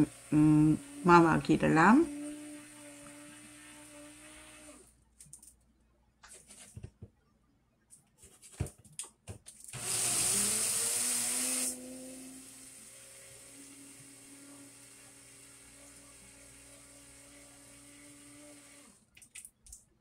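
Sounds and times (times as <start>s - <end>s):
electric mixer grinder running: 0.0s - 4.9s, 9.8s - 19.0s.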